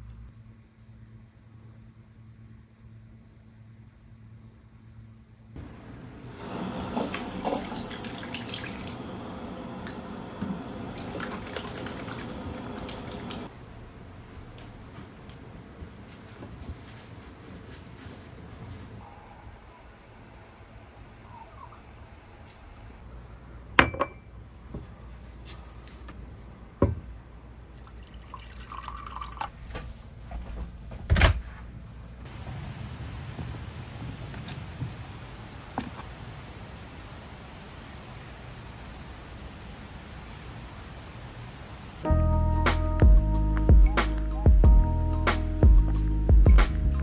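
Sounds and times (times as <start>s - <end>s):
low steady hum: 0.0s - 34.3s
water dripping and splashing: 6.4s - 9.2s, 9.9s - 13.5s.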